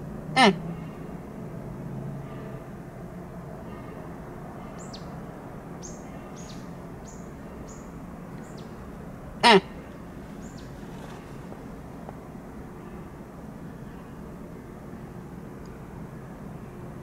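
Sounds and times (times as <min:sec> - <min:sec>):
songbird chirping: 0:04.6 - 0:15.8
deer barking: 0:09.4 - 0:10.0.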